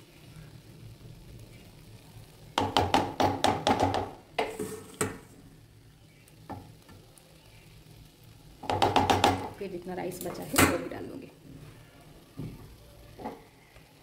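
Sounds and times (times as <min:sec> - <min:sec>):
spoon scraping a pan: 0:04.4 - 0:05.4.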